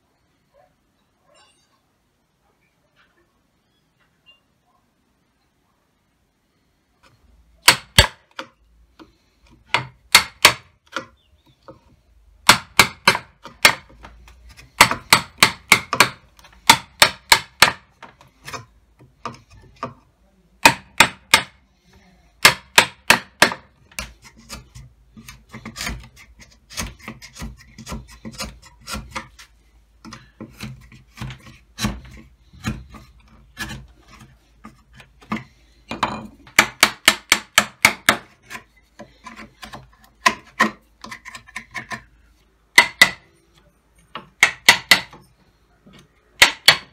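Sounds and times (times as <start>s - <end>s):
mallet striking wood chisel: 7.6s - 8.6s, 9.5s - 11.1s, 12.4s - 20.0s, 20.6s - 21.6s, 22.4s - 29.4s, 30.0s - 42.1s, 42.7s - 43.3s, 44.1s - 45.3s, 46.4s - 46.9s
chisel scraping wood: 22.4s - 43.3s.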